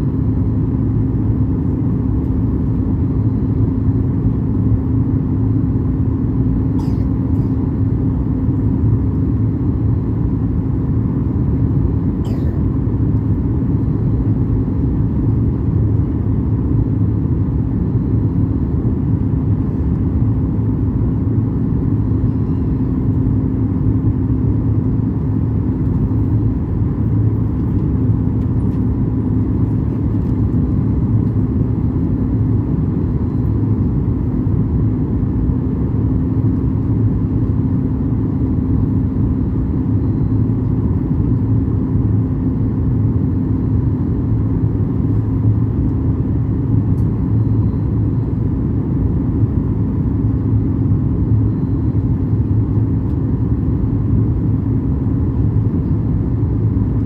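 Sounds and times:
airliner engines droning: 0.0 - 57.0.

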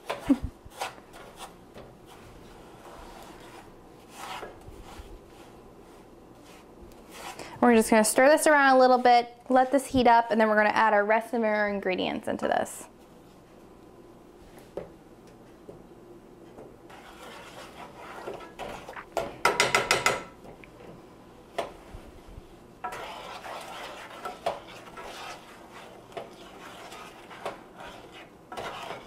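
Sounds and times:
wooden spoon scraping metal pot: 0.0 - 7.6, 16.9 - 19.1, 22.8 - 29.0.

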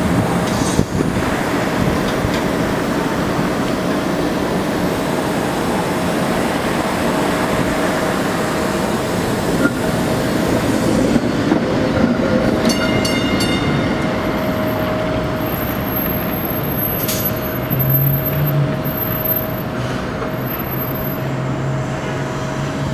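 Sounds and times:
city traffic noise: 0.0 - 22.9
light rail vehicle rolling: 0.0 - 22.9
high wheel squeal: 12.6 - 22.8.

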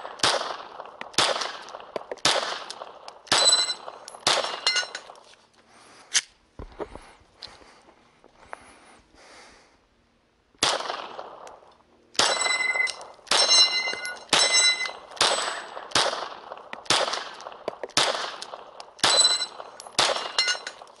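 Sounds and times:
pistol shots: 0.0 - 5.2, 10.6 - 11.6, 12.2 - 21.0
steel plate ringing when hit: 3.4 - 3.8, 12.2 - 15.6, 19.1 - 19.6, 20.3 - 20.7.

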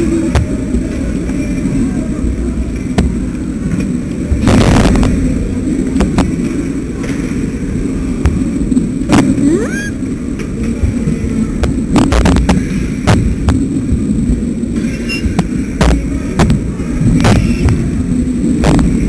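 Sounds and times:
low rumbling microphone static: 0.0 - 19.0
rising tone: 9.4 - 10.0.

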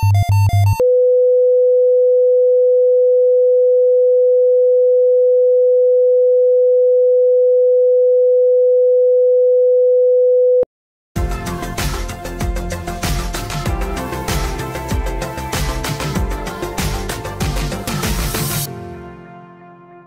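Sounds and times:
heart monitor flatline tone: 0.0 - 10.6.

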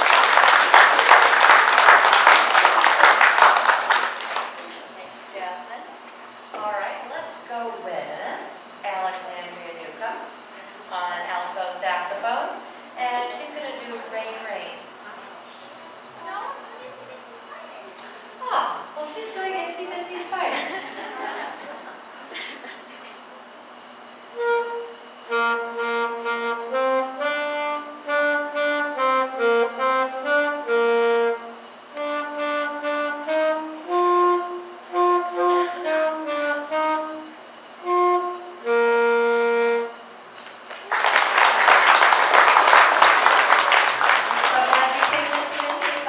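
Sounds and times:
audience applause: 0.0 - 4.9, 40.4 - 46.0
wind instrument playing tune: 24.3 - 40.2.

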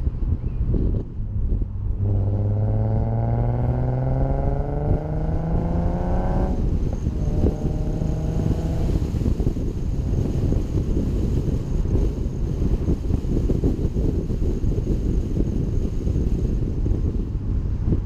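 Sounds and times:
wind and road noise: 0.0 - 18.0
car engine accelerating: 0.7 - 18.0.

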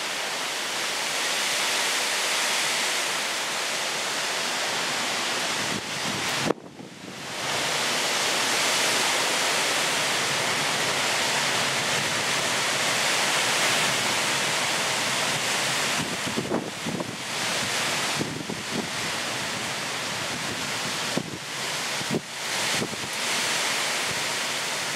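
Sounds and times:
heavy rain downpour: 0.0 - 24.9
wind in trees: 0.0 - 24.9
wind buffeting microphone: 5.4 - 7.8, 15.2 - 23.2.

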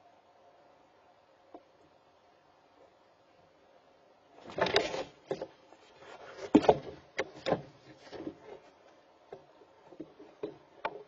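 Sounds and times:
knocks and scuffs against wood: 4.5 - 8.7.

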